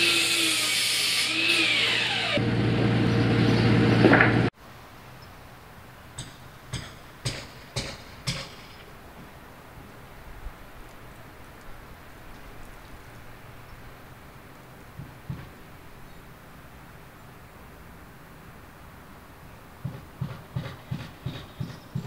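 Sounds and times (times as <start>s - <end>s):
mitre saw whining: 0.0s - 4.5s.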